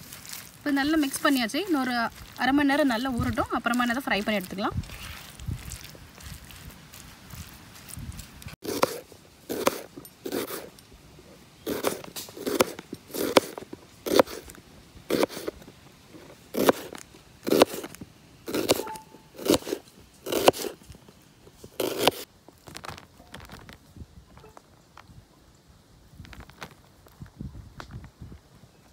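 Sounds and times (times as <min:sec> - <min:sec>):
knife slicing onion: 0:08.6 - 0:10.7, 0:11.6 - 0:15.6, 0:16.5 - 0:20.8, 0:21.7 - 0:22.3.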